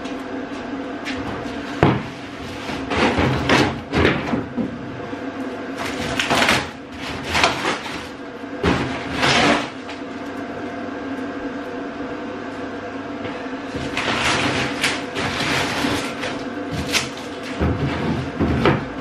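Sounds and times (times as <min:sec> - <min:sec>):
faint hum: 0:00.0 - 0:19.0.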